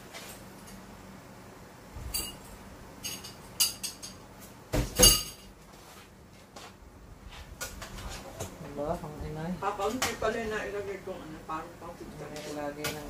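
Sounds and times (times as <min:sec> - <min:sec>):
dishes and cutlery clinking: 0:02.1 - 0:04.3, 0:04.9 - 0:05.6.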